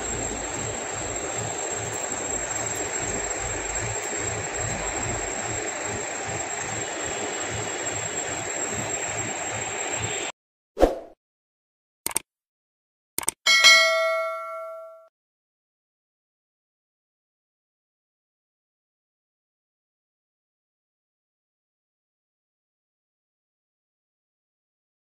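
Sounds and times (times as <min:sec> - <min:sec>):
brief swish: 0:10.8 - 0:11.2.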